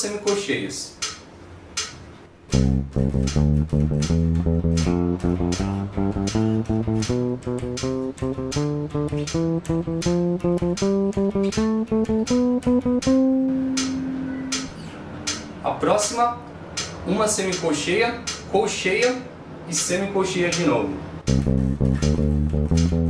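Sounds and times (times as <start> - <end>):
electric bass playing a scale: 2.5 - 15.0, 21.3 - 23.0.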